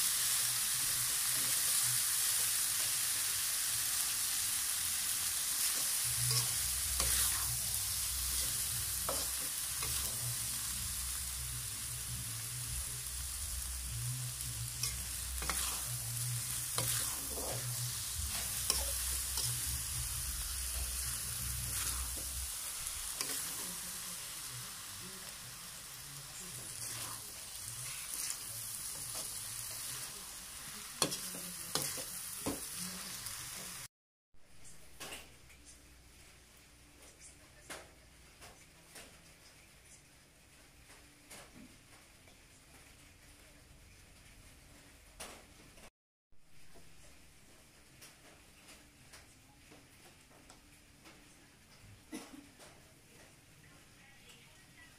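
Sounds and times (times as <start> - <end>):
food sizzling in a pan: 0.0 - 33.9
spatula scraping a pan: 5.4 - 11.4, 13.6 - 24.9, 26.7 - 30.1, 30.8 - 32.8.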